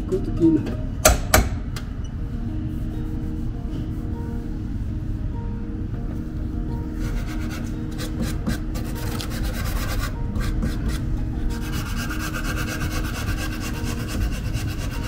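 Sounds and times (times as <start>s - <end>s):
sandpaper rubbing panel: 7.0s - 15.0s.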